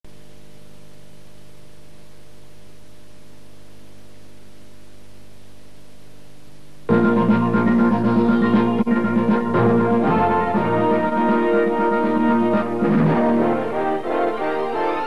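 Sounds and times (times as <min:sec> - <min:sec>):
electrical hum: 0:00.1 - 0:15.0
videotape hiss: 0:00.1 - 0:15.0
loud music: 0:06.9 - 0:15.0.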